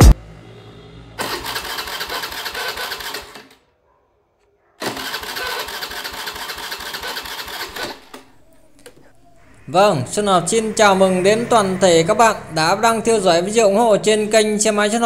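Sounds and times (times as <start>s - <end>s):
electric starter cranking engine: 1.2s - 3.6s, 4.8s - 9.6s.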